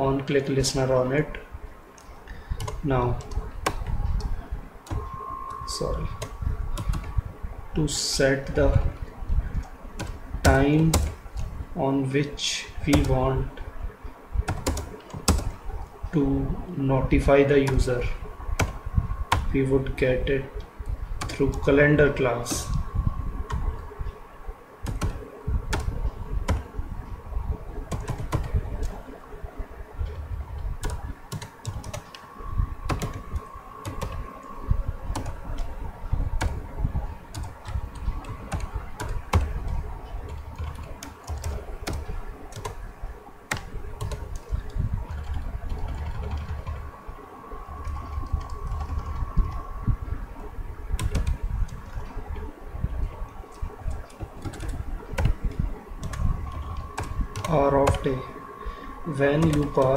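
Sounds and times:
computer keyboard typing: 2.0 - 7.2, 9.5 - 11.5, 12.8 - 13.3, 14.4 - 15.7, 18.6 - 19.6, 21.2 - 21.8, 24.8 - 26.7, 27.8 - 29.2, 30.0 - 32.2, 32.9 - 34.5, 35.1 - 35.8, 36.4 - 36.6, 37.3 - 42.8, 43.5 - 47.0, 47.8 - 49.6, 51.0 - 52.2, 53.4 - 58.4, 59.1 - 59.9.

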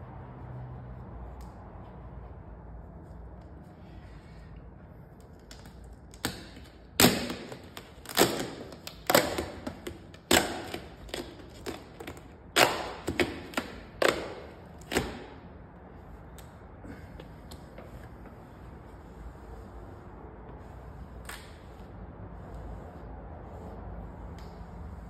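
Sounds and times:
vinyl film snapping and crackling: 5.4 - 15.3.

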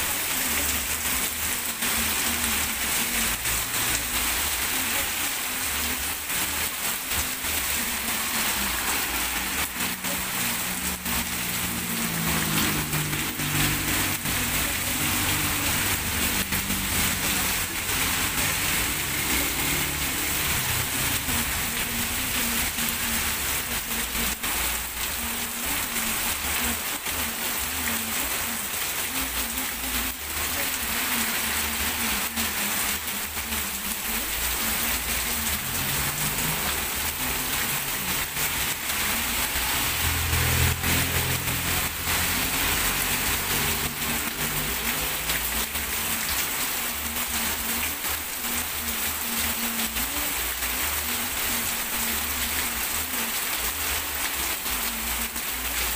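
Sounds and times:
heavy rain on street: 0.0 - 55.9
vehicle engine passing: 8.2 - 21.2, 35.5 - 45.5.

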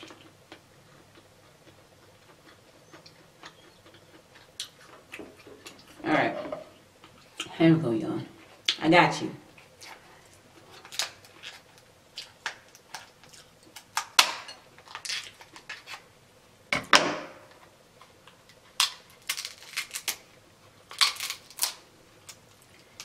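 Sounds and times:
crab shell cracking: 18.7 - 20.2, 20.9 - 23.0.

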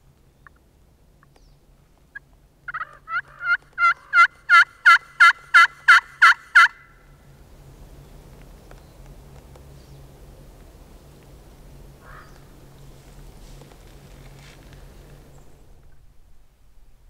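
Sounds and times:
turkey call yelps: 2.1 - 7.0.

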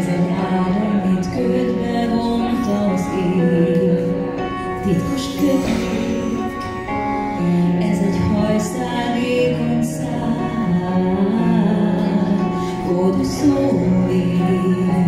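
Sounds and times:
woman singing a slow ballad: 0.0 - 15.0
instrumental accompaniment: 0.1 - 15.0.

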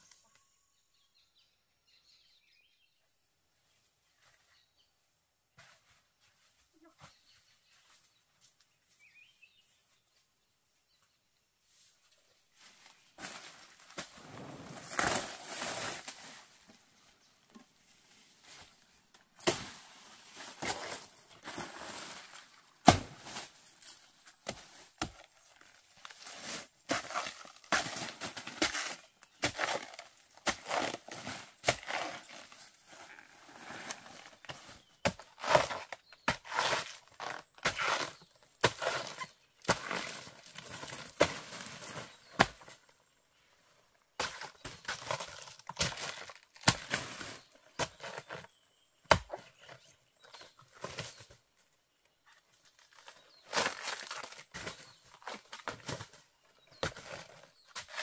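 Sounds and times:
blade chopping plant stalks: 19.4 - 32.7, 33.8 - 42.8, 44.2 - 51.4, 52.7 - 58.0.

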